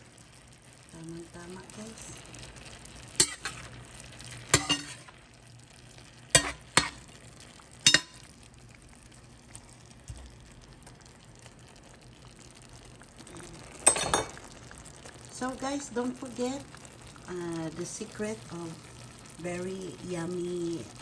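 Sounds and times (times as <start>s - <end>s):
faint sizzle: 0.0s - 21.0s
spatula clanking on steel pan: 3.2s - 3.6s, 4.6s - 5.1s, 6.4s - 7.0s, 7.8s - 8.2s.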